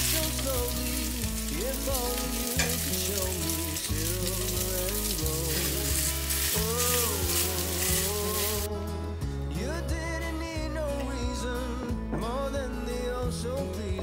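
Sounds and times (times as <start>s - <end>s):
patties sizzling in frying pan: 0.0s - 8.7s
background music: 0.0s - 14.0s.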